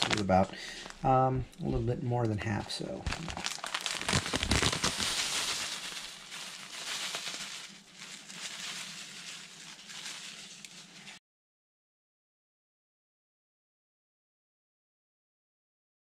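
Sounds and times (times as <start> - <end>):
plastic bag crinkling: 0.0 - 1.1, 3.0 - 11.2
breadcrumbs pouring into a bowl: 3.1 - 11.2.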